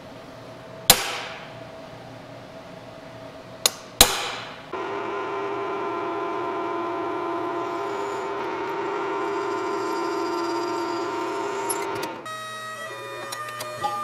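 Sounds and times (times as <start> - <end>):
hammer striking center punch: 0.9 - 1.5, 3.7 - 4.6
drill press motor humming: 4.7 - 14.0.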